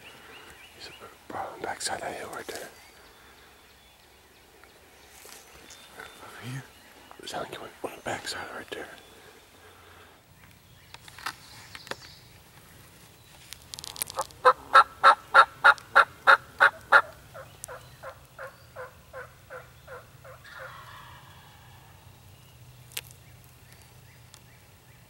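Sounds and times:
turkey yelps: 14.4s - 17.2s, 18.0s - 21.8s.

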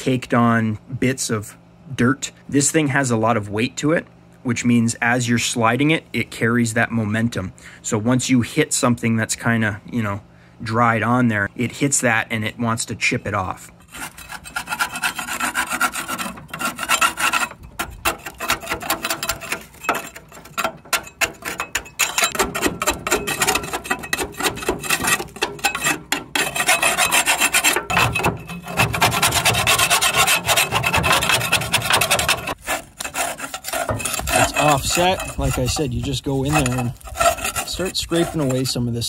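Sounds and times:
trowel scraping dirt off metal: 13.8s - 39.0s.

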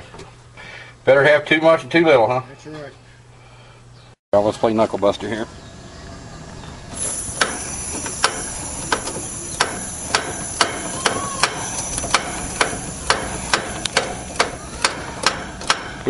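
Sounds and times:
refrigerant hissing: 5.4s - 16.0s
ratchet wrench clicking: 7.0s - 16.0s.

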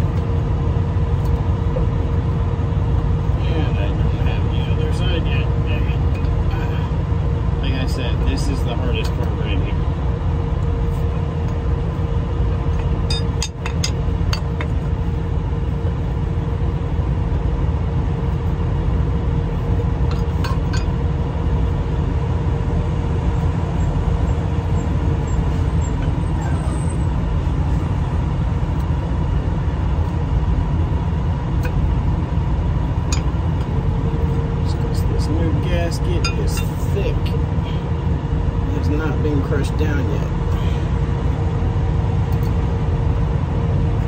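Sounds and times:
engine idling: 0.0s - 44.0s.

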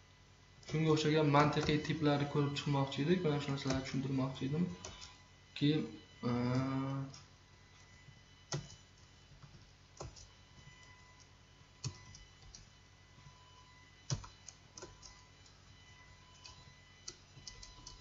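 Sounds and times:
faint steady high hum: 0.0s - 18.0s
computer keyboard key presses: 8.5s - 8.8s, 9.4s - 10.3s, 14.1s - 15.2s, 16.4s - 18.0s.

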